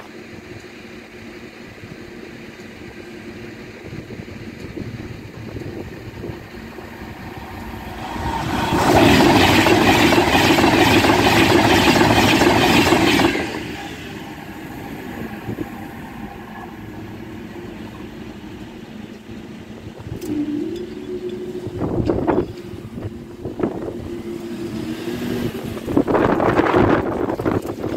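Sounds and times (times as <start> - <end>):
train passing: 0.0 - 27.9
train wheels clattering: 4.5 - 27.9.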